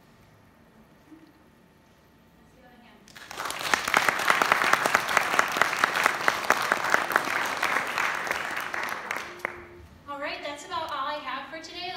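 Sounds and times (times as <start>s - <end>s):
audience applauding: 3.1s - 9.8s.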